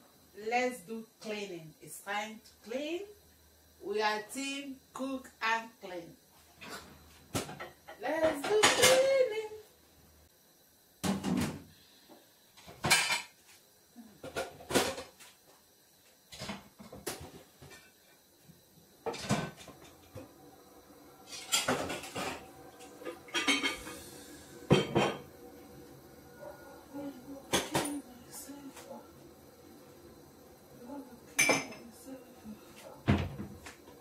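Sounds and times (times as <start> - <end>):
dishes and cutlery clattering: 21.3 - 24.0.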